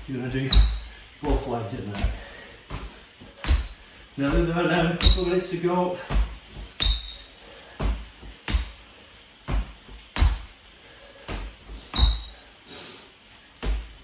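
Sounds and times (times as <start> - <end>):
shoe squeak: 0.5 - 0.9, 5.0 - 5.4, 6.8 - 7.4, 8.4 - 9.0, 11.8 - 12.4
trainers thudding on wooden floor: 0.5 - 5.4, 6.0 - 7.1, 9.4 - 10.5.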